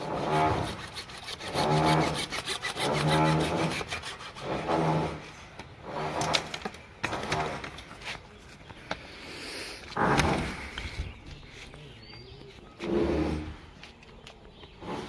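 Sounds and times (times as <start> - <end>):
hand saw cutting plastic pipe: 0.0 - 7.8.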